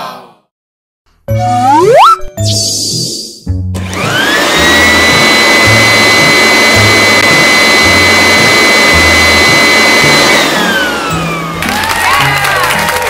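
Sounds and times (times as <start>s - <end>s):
vacuum cleaner motor whine: 3.8s - 11.6s.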